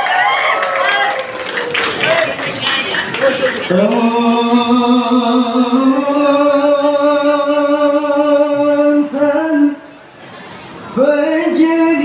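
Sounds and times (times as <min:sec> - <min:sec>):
amplified solo singing voice: 0:03.7 - 0:09.9, 0:10.9 - 0:12.0.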